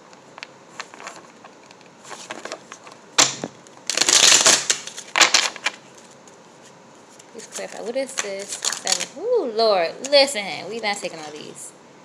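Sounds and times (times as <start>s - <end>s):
cards riffle shuffling: 0.7s - 9.2s.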